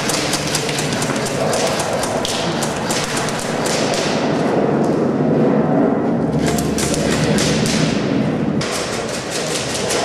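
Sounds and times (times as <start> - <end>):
airsoft guns firing: 0.0 - 4.3.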